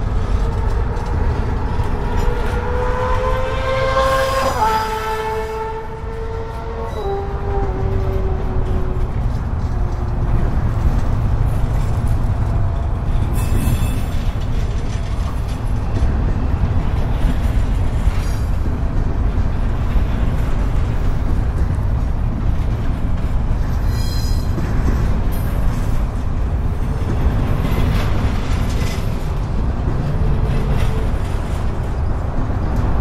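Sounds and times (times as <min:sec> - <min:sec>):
freight train rumbling past: 0:00.0 - 0:33.0
train wheels squealing: 0:13.2 - 0:14.4, 0:23.7 - 0:25.6.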